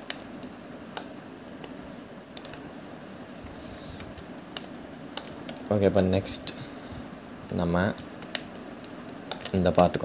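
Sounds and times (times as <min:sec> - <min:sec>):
mouse and keyboard clicks: 0:00.0 - 0:02.7, 0:04.0 - 0:05.7, 0:08.0 - 0:09.6
steady background hiss: 0:00.0 - 0:10.0.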